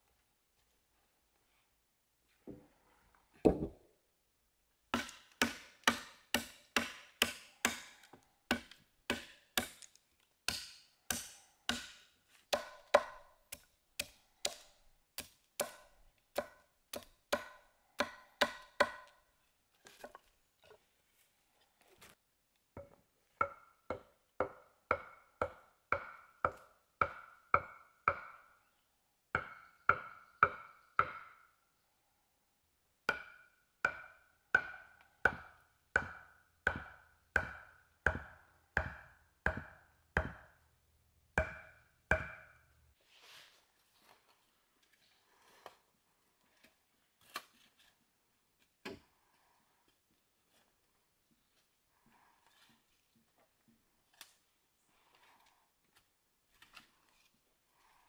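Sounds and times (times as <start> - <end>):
hollow wooden knocks: 3.4 - 3.8
machete chopping wood: 5.0 - 9.9, 10.5 - 19.0, 33.1 - 40.5, 41.4 - 42.5.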